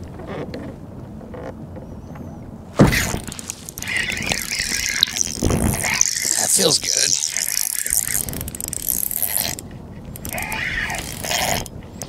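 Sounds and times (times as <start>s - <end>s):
fishing reel gears whirring: 3.0s - 11.7s.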